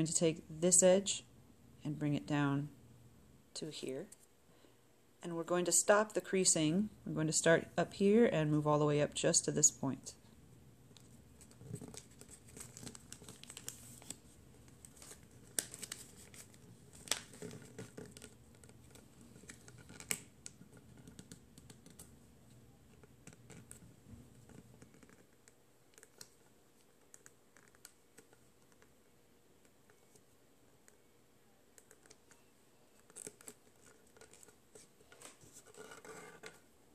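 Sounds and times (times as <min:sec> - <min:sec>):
paper crinkling and crackling: 0:10.9 - 0:29.0, 0:31.7 - 0:36.6.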